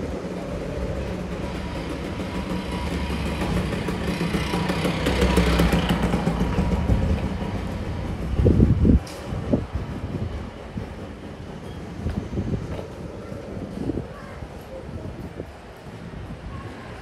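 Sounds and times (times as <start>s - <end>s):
motor scooter passing by: 0.2s - 9.0s.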